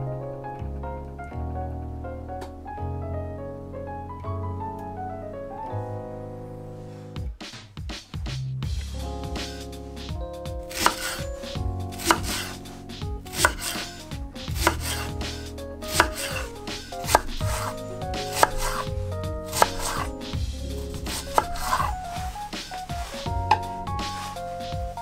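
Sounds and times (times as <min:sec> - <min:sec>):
soft background music: 0:00.0 - 0:07.5, 0:08.7 - 0:25.0
knife chopping on cutting board: 0:10.7 - 0:11.2, 0:12.0 - 0:12.6, 0:13.3 - 0:13.9, 0:14.6 - 0:15.1, 0:15.9 - 0:18.9, 0:19.5 - 0:20.1, 0:21.1 - 0:22.0.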